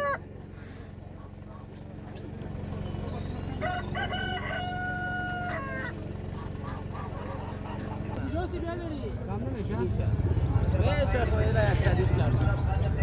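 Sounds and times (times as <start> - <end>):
rooster crowing: 0.0 - 0.2, 3.5 - 6.0.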